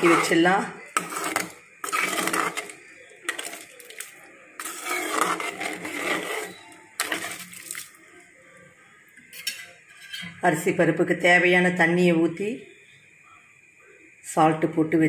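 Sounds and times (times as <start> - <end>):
metal ladle scraping steel pan: 0.0 - 7.9, 9.3 - 10.4.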